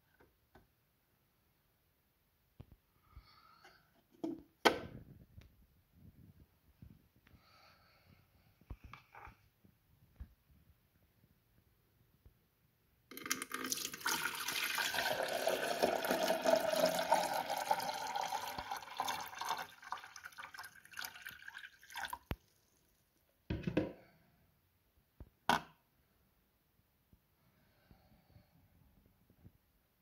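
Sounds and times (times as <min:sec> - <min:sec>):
water dripping: 0:13.1 - 0:22.5
water pouring into plastic tank: 0:13.1 - 0:22.5.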